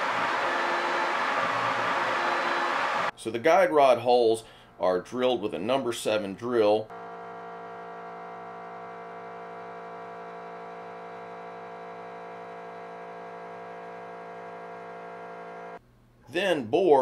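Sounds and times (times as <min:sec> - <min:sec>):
milling machine whining hum: 0:06.9 - 0:15.8.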